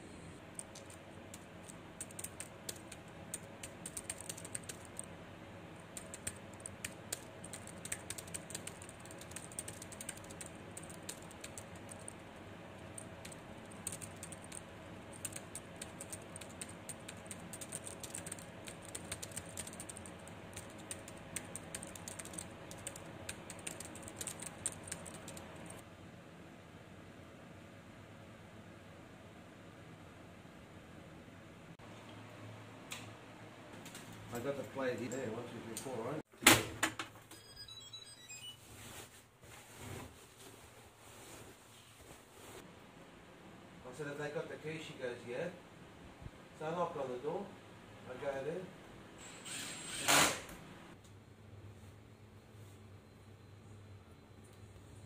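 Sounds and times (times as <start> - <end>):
keyboard typing clicks: 0.5 - 5.1, 5.9 - 12.2, 12.9 - 25.8.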